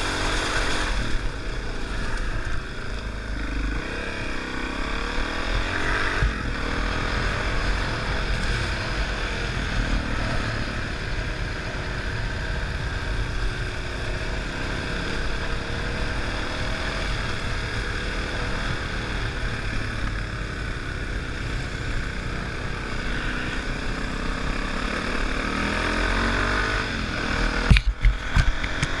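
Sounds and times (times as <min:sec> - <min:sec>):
motorcycle engine running: 0:00.0 - 0:29.0
wind rushing over camera: 0:26.8 - 0:29.0.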